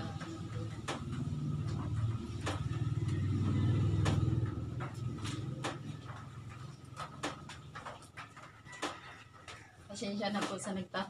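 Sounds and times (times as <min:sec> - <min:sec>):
vehicle rumbling past: 0:00.0 - 0:08.5.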